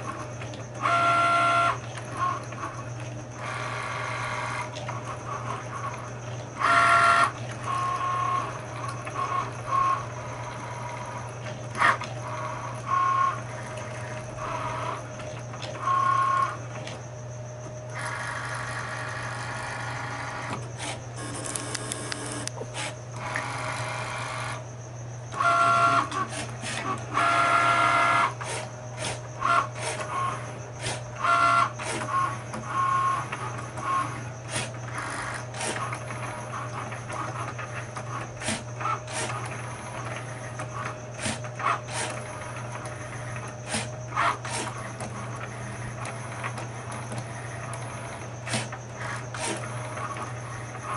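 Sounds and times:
cutting machine motors whining: 0:00.0 - 0:50.9
steady low hum: 0:00.0 - 0:50.9
small machine clicks: 0:20.4 - 0:22.6.

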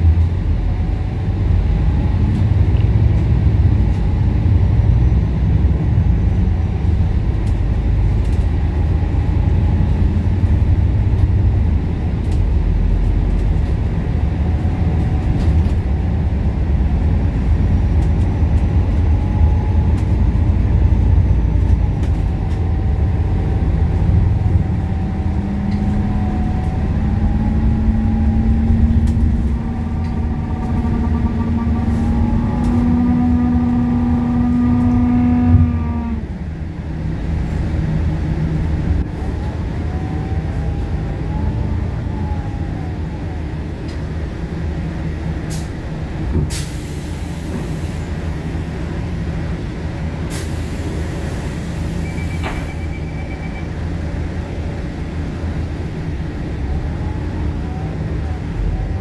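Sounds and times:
bus engine and road rumble: 0:00.0 - 0:59.0
humming whine rising in pitch: 0:22.9 - 0:36.3.

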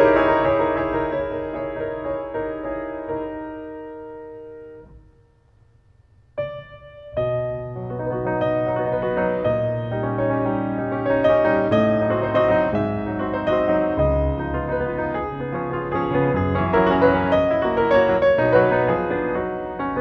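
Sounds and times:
piano music: 0:00.0 - 0:05.3, 0:06.4 - 0:20.0.

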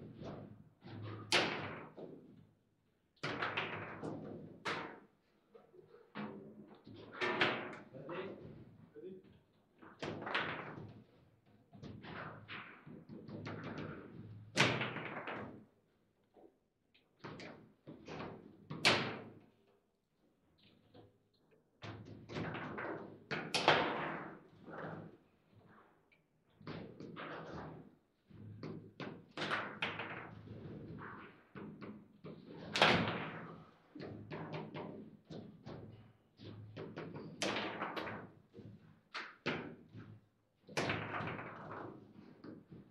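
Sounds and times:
hard table football shots: 0:00.1 - 0:02.2, 0:11.9 - 0:15.6, 0:17.3 - 0:19.4, 0:21.9 - 0:24.4, 0:28.7 - 0:38.4, 0:39.2 - 0:42.9
table football knocking and clacking: 0:03.2 - 0:05.1, 0:09.9 - 0:11.0, 0:26.7 - 0:42.9.

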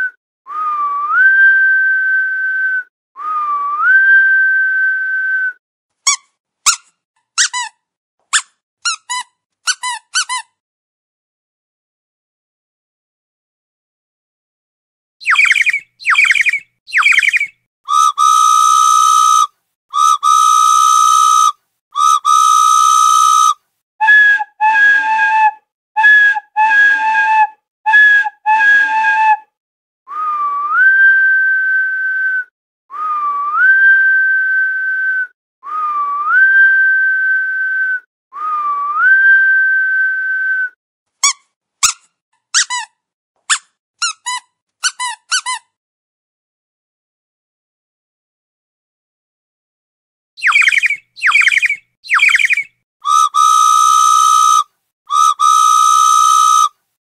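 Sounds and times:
short falling chirps: 0:15.2 - 0:17.5, 0:50.4 - 0:54.6
rising whistles: 0:15.2 - 0:23.5, 0:50.4 - 0:56.7.

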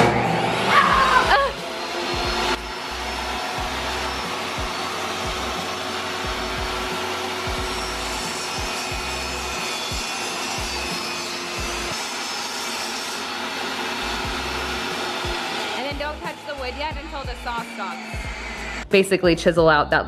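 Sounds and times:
table saw cutting wood: 0:00.0 - 0:19.0.

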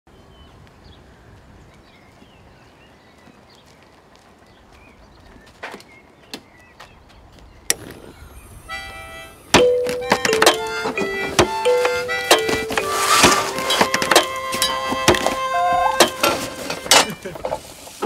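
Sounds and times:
faint birdsong: 0:00.1 - 0:09.8.

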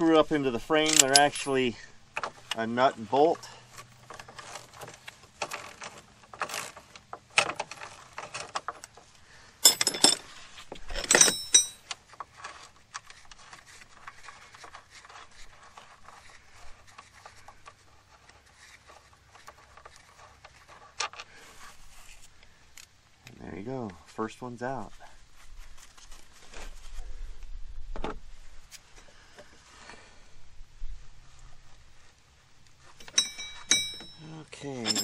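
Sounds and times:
ringing metallic clanks: 0:09.6 - 0:10.2, 0:11.0 - 0:11.9, 0:33.0 - 0:35.0.

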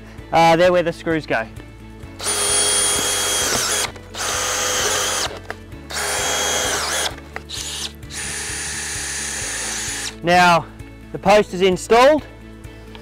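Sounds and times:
cordless drill driving screws: 0:02.2 - 0:10.2.

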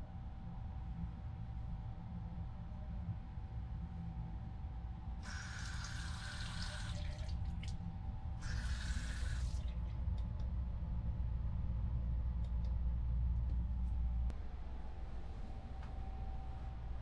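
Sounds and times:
steady low hum: 0:00.0 - 0:17.0
tap water running into basin: 0:05.2 - 0:07.7.

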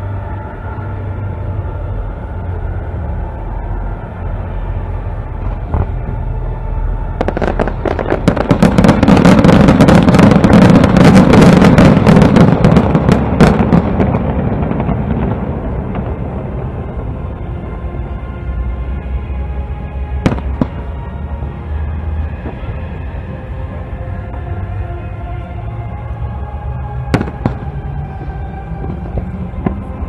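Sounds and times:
fireworks crackling and popping: 0:07.2 - 0:16.8, 0:20.2 - 0:21.0.

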